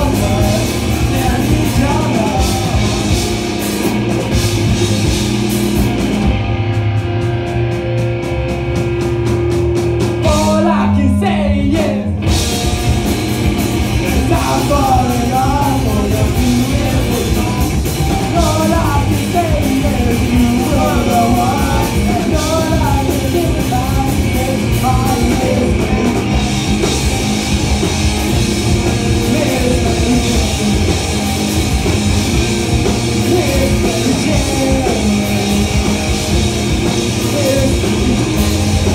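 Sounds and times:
vocalist singing: 0:00.0 - 0:03.5, 0:10.2 - 0:12.4, 0:13.8 - 0:26.7, 0:28.9 - 0:31.3, 0:32.8 - 0:38.9
punk rock band playing: 0:00.0 - 0:38.9.

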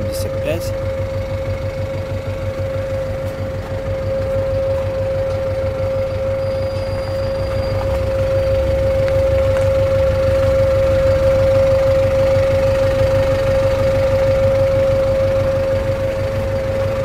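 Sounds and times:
engine idling: 0:00.0 - 0:17.0
steady whining tone: 0:00.0 - 0:17.0.

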